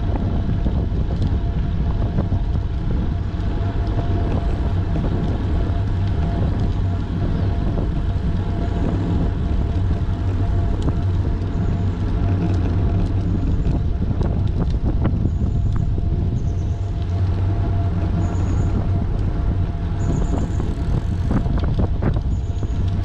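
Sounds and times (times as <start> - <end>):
faint steady whine: 0.0 - 23.0
tyres rumbling on asphalt: 0.0 - 23.0
wind rush on microphone: 0.0 - 23.0.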